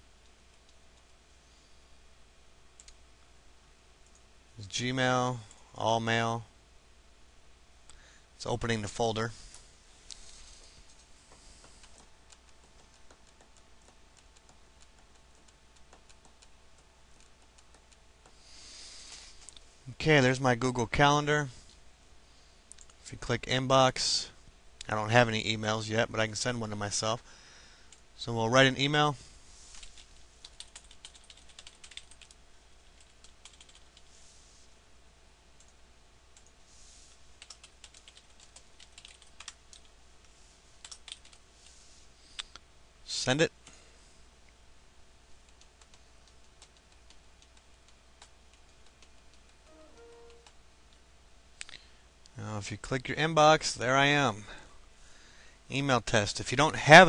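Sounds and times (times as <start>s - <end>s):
keyboard typing: 10.8s - 18.4s, 29.7s - 34.1s, 37.4s - 39.9s, 40.8s - 41.4s, 45.4s - 50.6s.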